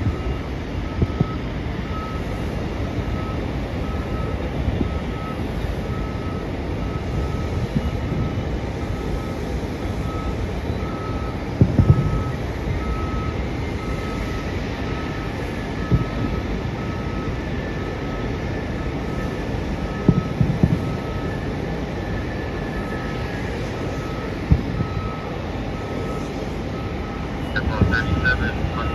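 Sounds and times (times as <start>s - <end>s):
distant fireworks booms: 0.0s - 1.5s, 11.5s - 12.5s, 15.8s - 16.5s, 19.9s - 21.2s, 24.4s - 25.2s, 27.5s - 28.9s
low engine rumble: 0.0s - 28.9s
reversing alarm beeping: 0.0s - 28.9s.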